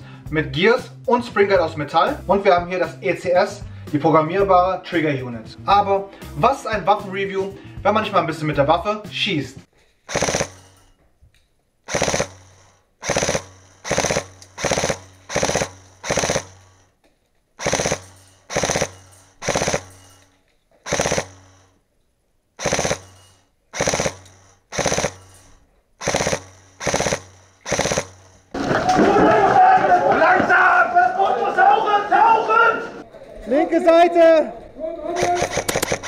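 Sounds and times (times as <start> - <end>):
airsoft gun firing bursts: 10.1 - 10.9, 11.9 - 16.9, 17.6 - 21.8, 22.6 - 28.7, 35.1 - 36.0.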